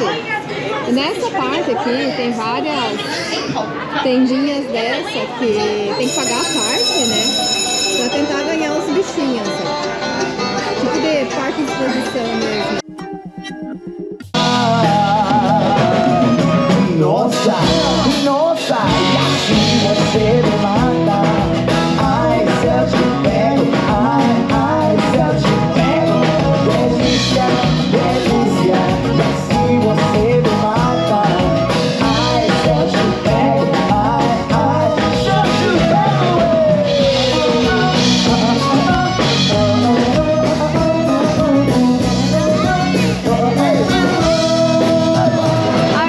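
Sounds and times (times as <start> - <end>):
guitar: 0.0 - 46.0
drum kit: 12.8 - 46.0
person singing into a microphone: 14.4 - 46.0.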